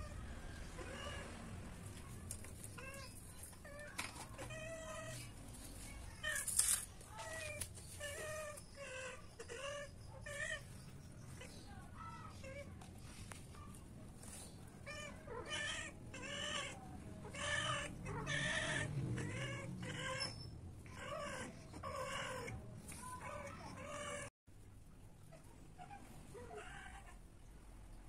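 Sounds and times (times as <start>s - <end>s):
cats yowling: 0.0s - 1.5s, 2.6s - 5.4s, 7.1s - 12.7s, 14.8s - 24.3s, 25.8s - 27.2s.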